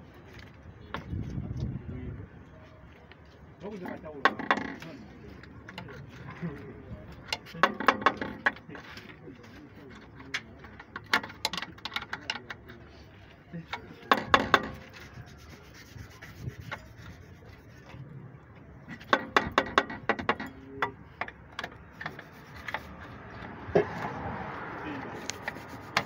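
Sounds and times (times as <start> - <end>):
metal scraping: 7.3 - 18.1, 18.8 - 24.2.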